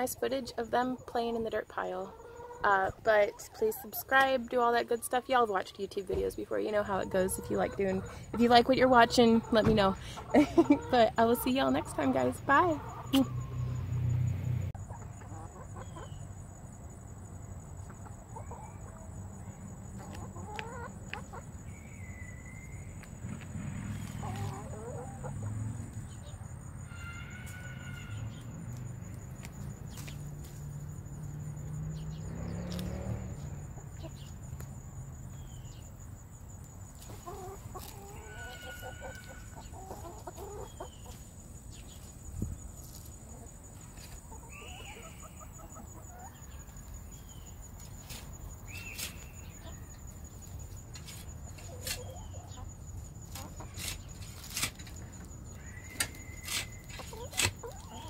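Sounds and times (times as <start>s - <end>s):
chickens clucking: 0.0s - 14.1s, 14.7s - 16.4s, 17.8s - 21.6s, 23.4s - 26.6s, 35.7s - 58.0s.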